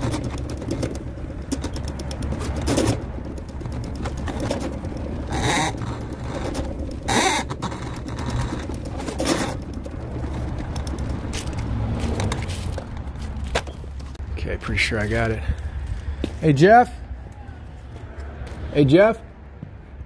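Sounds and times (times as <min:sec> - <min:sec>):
cable scraping in pipe: 0:05.2 - 0:10.5.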